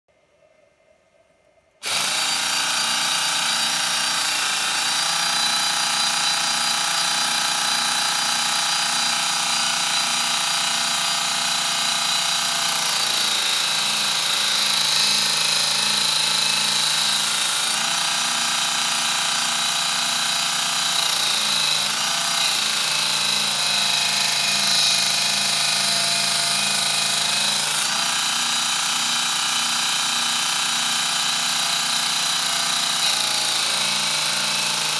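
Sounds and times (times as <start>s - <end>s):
belt grinder whining: 1.8s - 34.9s.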